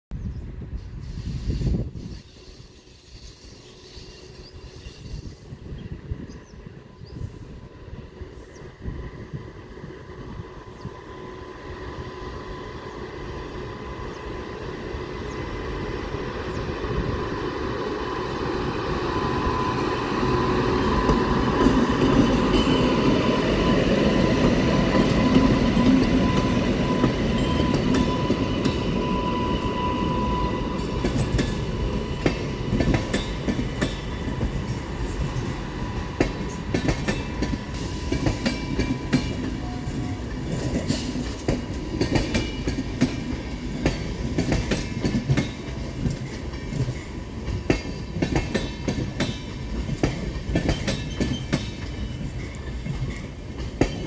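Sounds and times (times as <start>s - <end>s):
train wheels clicking on rails: 12.9s - 54.0s.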